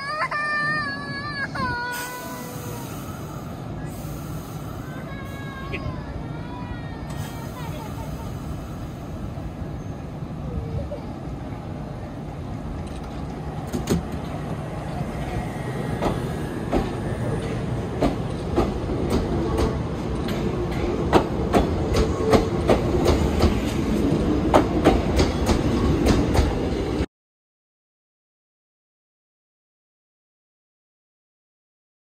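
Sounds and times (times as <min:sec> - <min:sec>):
train rumble: 0:00.0 - 0:27.1
train wheels clicking on rail joints: 0:12.8 - 0:14.6, 0:15.2 - 0:26.6.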